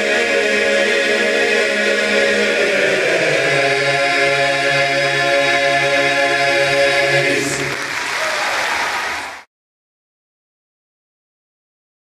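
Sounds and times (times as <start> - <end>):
men's chorus singing a cappella: 0.0 - 7.8
audience applause: 7.5 - 9.5.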